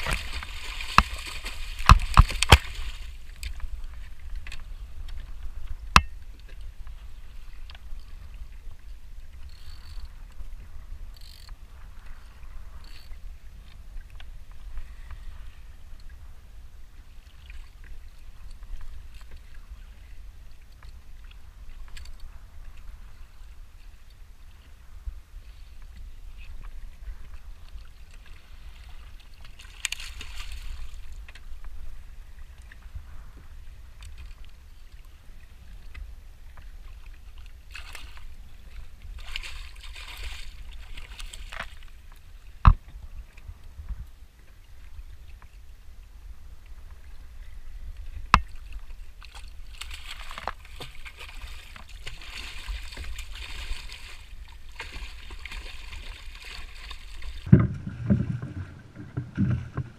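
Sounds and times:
fish splashing in water: 0.0 - 3.2.

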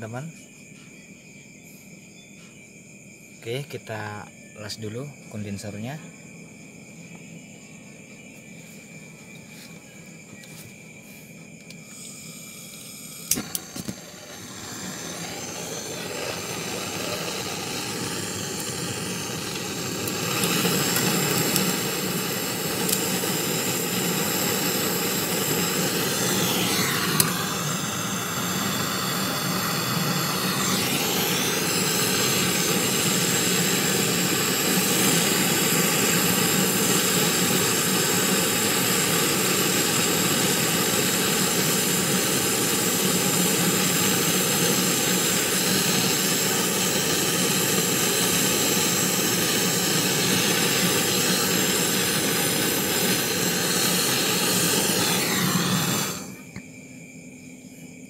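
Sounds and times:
torch igniter clicks: 11.6 - 56.7
torch flame roaring: 11.7 - 56.6.

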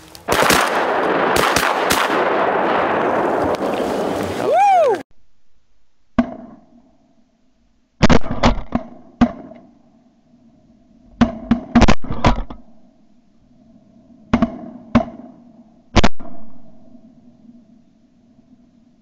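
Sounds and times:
shotgun blasts with echo: 0.3 - 4.2, 8.0 - 9.6, 15.9 - 16.6.

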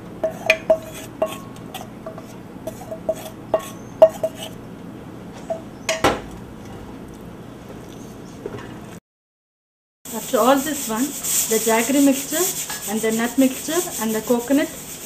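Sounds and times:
spoon scraping metal bowl: 0.2 - 4.6, 10.2 - 15.0.

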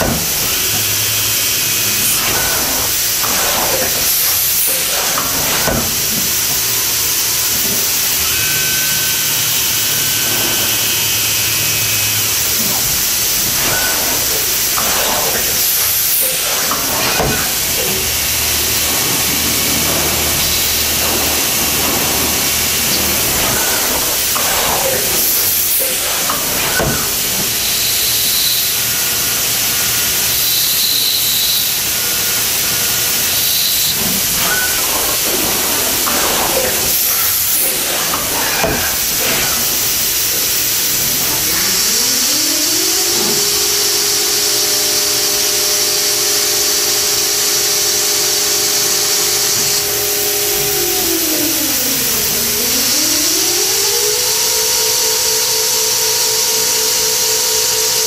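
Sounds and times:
coolant spray hiss: 0.0 - 41.9
spindle whine: 0.0 - 58.0.

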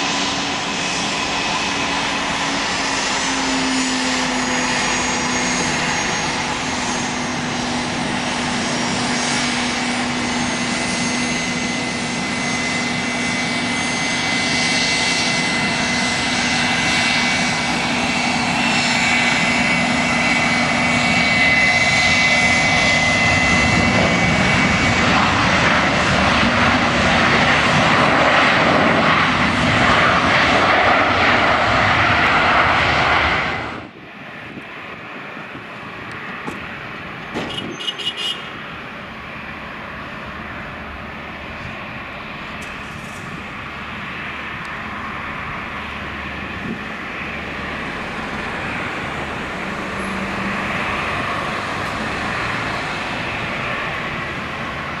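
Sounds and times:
jet engines whining: 0.0 - 55.0
rushing noise of plane slowing: 0.0 - 55.0.

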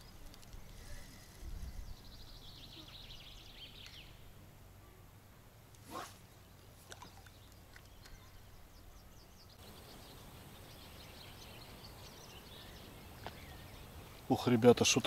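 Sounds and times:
birds chirping faintly: 0.0 - 15.0
fishing rod swishing: 5.8 - 7.3.

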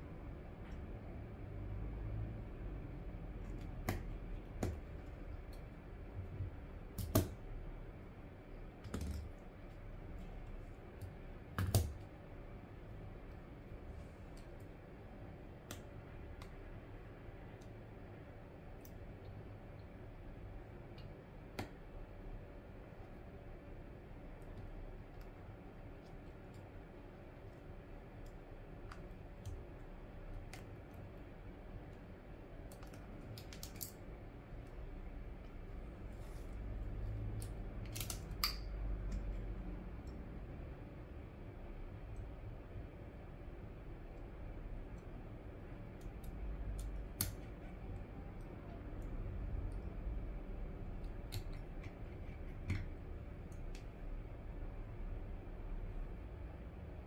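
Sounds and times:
clicks of small plastic parts: 32.7 - 34.0, 37.2 - 39.3.

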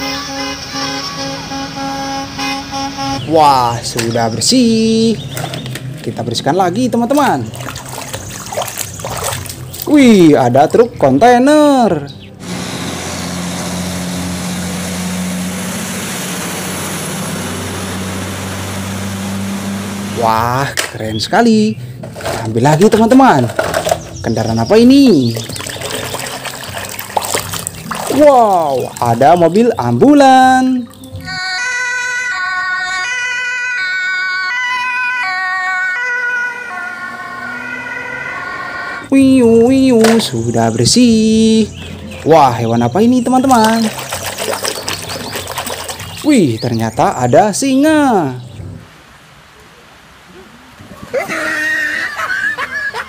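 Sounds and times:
truck engine drone: 0.0 - 9.9, 11.0 - 21.1, 23.5 - 47.2
tyres hissing on wet road: 12.4 - 20.2
two-tone emergency siren: 31.1 - 39.1.

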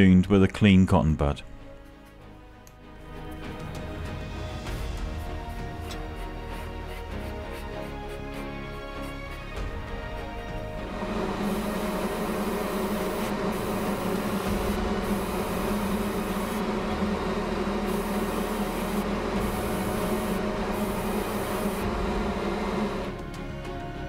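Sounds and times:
airbrush spraying hiss: 5.0 - 9.7, 11.1 - 23.1
steady low hum: 10.2 - 23.2.

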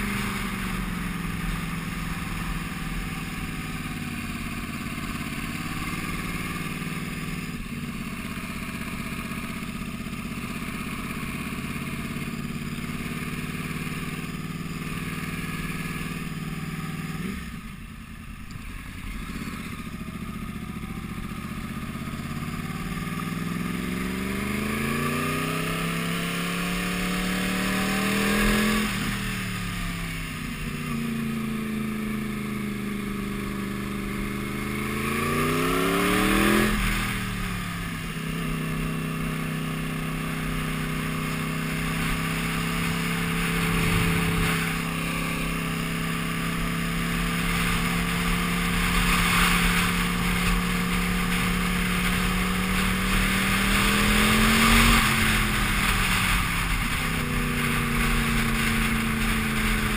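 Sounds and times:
motorcycle engine: 0.0 - 59.9
wind rushing over microphone: 41.8 - 47.5.

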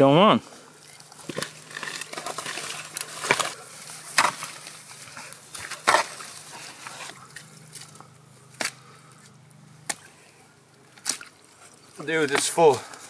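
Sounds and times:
digging tool chopping wet mud: 1.2 - 7.9, 8.5 - 8.9, 9.8 - 10.1, 12.2 - 12.6.

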